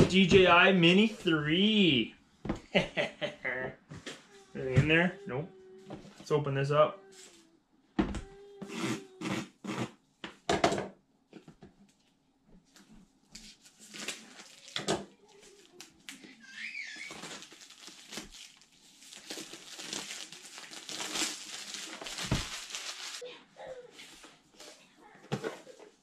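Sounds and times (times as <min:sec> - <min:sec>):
cardboard box crinkling: 0:17.1 - 0:23.2.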